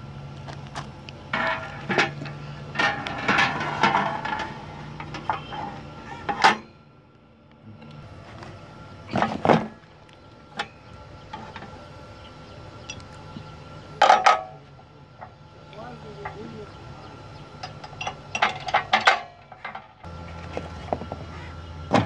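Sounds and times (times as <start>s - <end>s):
low hum: 0.0s - 22.0s
metal knocks and clatter: 0.6s - 6.7s, 17.6s - 21.2s.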